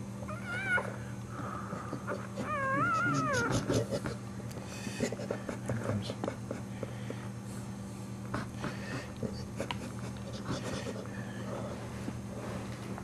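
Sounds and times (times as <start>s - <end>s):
steady low hum: 0.0s - 13.0s
soft dog sounds: 0.3s - 4.2s, 8.3s - 12.7s.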